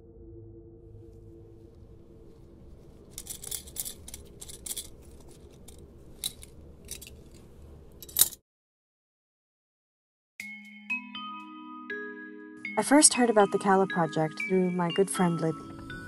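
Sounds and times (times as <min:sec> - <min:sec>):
low steady hum: 0:00.0 - 0:08.4.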